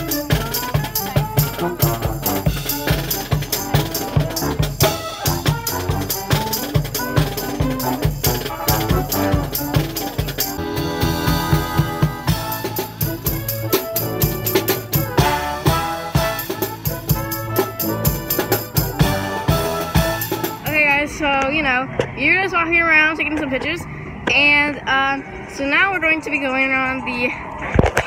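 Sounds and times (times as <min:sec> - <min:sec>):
marching band playing: 0:00.0 - 0:21.3.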